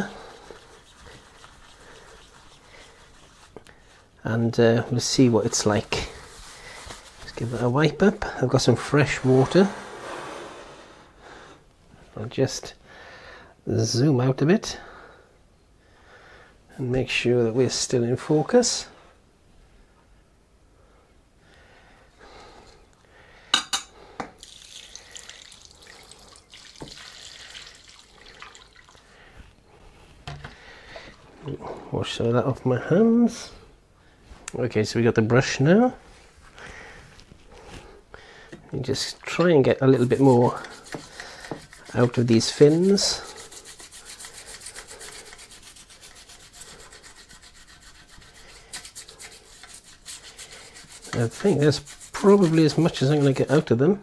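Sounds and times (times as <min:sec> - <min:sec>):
brush scrubbing metal fins in water: 0:00.0 - 0:04.1, 0:04.9 - 0:08.4, 0:39.0 - 0:53.8
water pouring into plastic bowl: 0:24.4 - 0:29.1.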